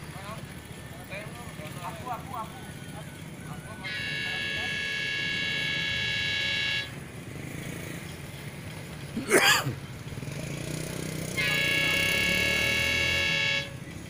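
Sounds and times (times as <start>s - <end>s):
train horn chord: 3.8s - 7.0s, 11.3s - 13.8s.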